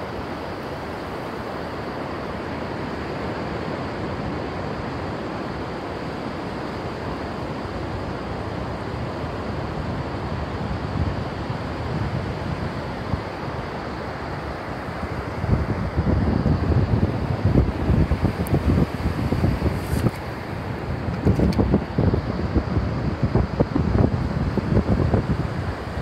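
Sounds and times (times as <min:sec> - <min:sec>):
surf washing up beach: 0:00.0 - 0:26.0
wind buffeting microphone: 0:09.6 - 0:26.0.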